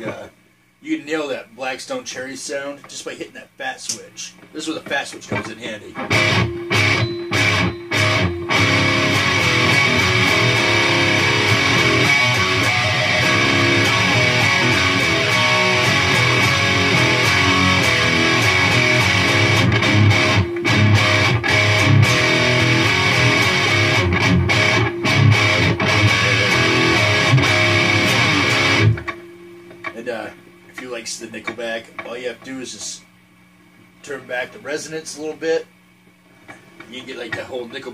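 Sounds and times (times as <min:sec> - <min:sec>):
distorted electric guitar chords: 0:05.3 - 0:30.7.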